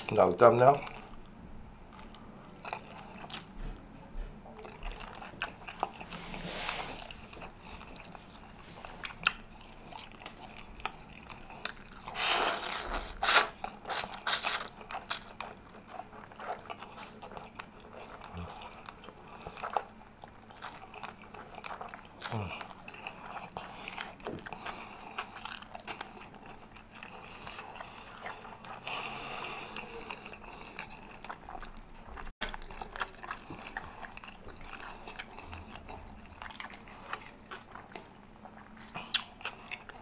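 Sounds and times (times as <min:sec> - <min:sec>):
chewing noodles with mouth clicks: 0:00.8 - 0:03.9, 0:04.6 - 0:06.2, 0:07.0 - 0:40.0
loud noodle slurps: 0:12.1 - 0:14.7.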